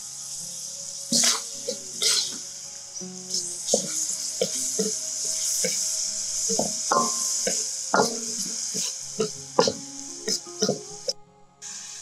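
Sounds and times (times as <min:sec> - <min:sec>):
food sizzling in hot oil: 0:00.0 - 0:12.0
metal ladle scraping a wok: 0:01.1 - 0:02.4, 0:03.3 - 0:11.1.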